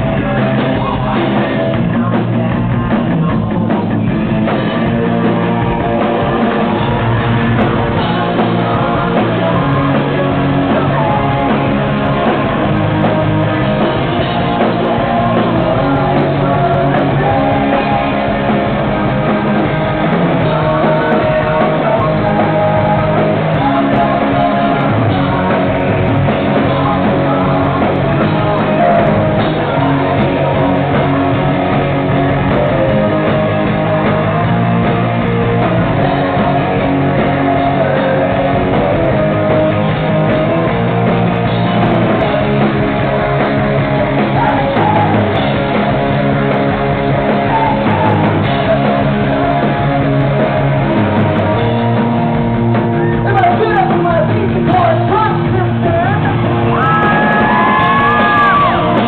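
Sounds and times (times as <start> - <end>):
man singing: 0.0 - 52.0, 53.0 - 59.0
drums: 0.0 - 59.0
electric guitars: 0.0 - 59.0.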